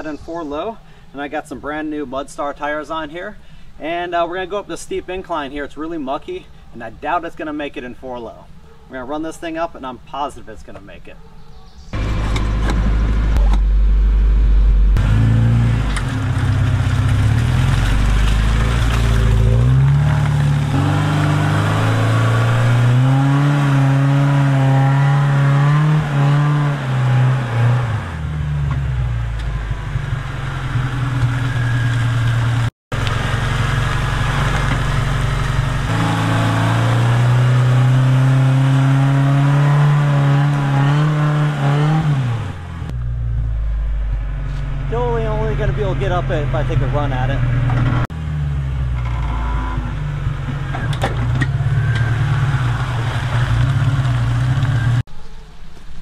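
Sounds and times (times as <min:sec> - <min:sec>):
engine revving under strain: 0:11.9 - 0:55.1.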